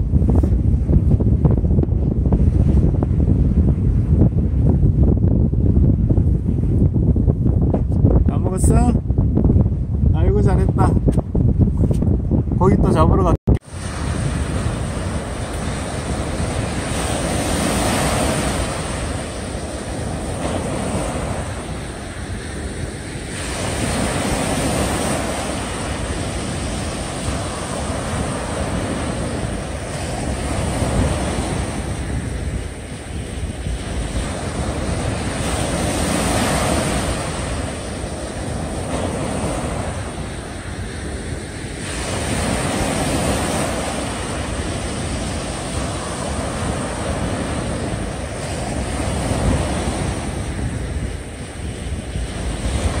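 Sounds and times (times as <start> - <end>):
wind on microphone: 0.0 - 53.0
small waves breaking on beach: 13.6 - 53.0.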